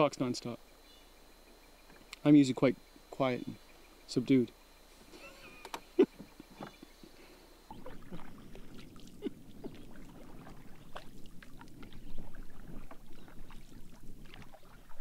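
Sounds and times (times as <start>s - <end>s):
water lapping against hull: 5.3s - 15.0s
canoe paddle splashes: 7.7s - 15.0s.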